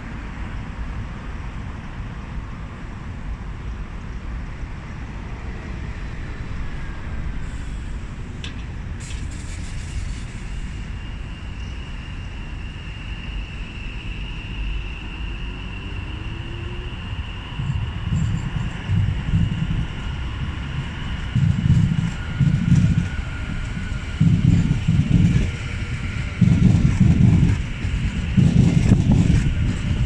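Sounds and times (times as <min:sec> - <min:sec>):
train rumbling on track: 0:00.0 - 0:30.0
wind buffeting microphone: 0:16.9 - 0:30.0.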